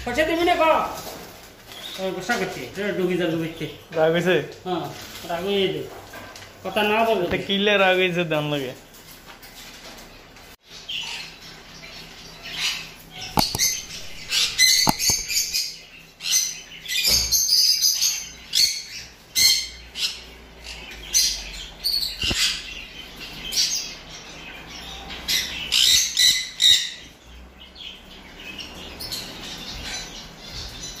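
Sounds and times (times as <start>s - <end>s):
parrot squawking: 12.5s - 15.8s.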